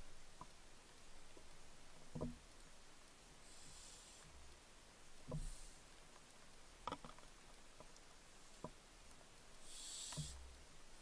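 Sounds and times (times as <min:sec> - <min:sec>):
faint clicks and knocks: 0:00.3 - 0:03.2, 0:04.2 - 0:10.7
owl hissing: 0:03.4 - 0:04.3, 0:09.6 - 0:10.4.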